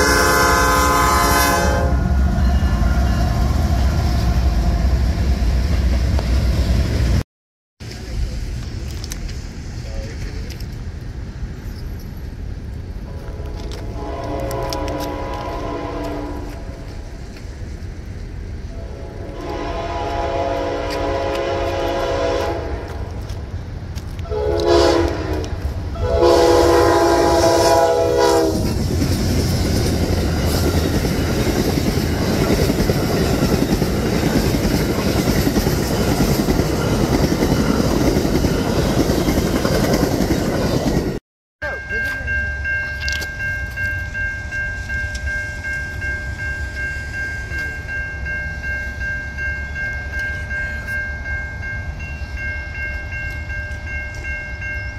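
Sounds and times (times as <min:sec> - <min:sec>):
crossing signal bell ringing: 0:00.0 - 0:04.2, 0:41.6 - 0:54.9
train horn blasts: 0:00.0 - 0:04.4, 0:13.1 - 0:16.8, 0:18.7 - 0:23.2, 0:24.2 - 0:28.8
train passing roar: 0:00.0 - 0:07.2, 0:07.8 - 0:54.9.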